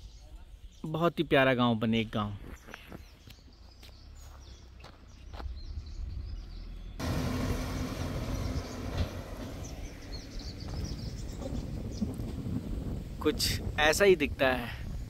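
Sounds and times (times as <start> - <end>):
road vehicle rumble: 3.0 - 13.8.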